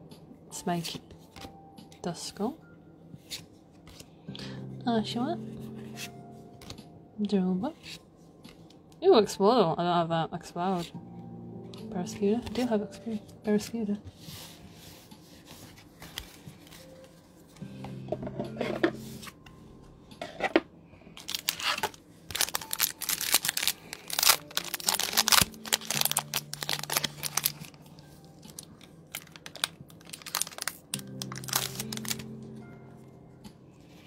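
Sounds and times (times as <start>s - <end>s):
foil wrapper tearing and crinkling: 21.2s - 32.4s.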